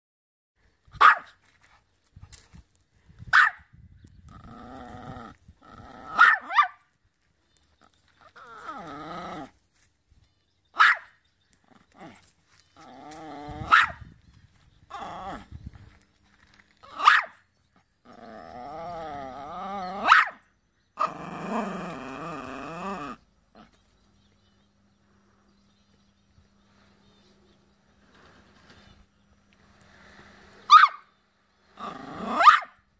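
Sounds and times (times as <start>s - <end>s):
small dog barking: 1.0s - 1.4s, 3.3s - 3.7s, 6.1s - 6.8s, 10.8s - 11.2s, 13.6s - 14.0s, 16.9s - 17.4s, 20.0s - 20.4s, 30.7s - 31.1s, 32.2s - 32.8s
dog growling: 4.3s - 6.2s, 8.3s - 9.6s, 11.6s - 13.8s, 14.9s - 15.5s, 18.0s - 20.1s, 21.0s - 23.8s, 31.7s - 32.5s.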